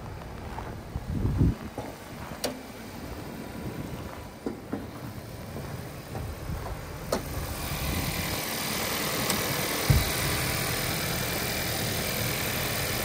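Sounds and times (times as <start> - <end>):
car engine idling: 0.0 - 13.0
dull thump: 9.8 - 10.3.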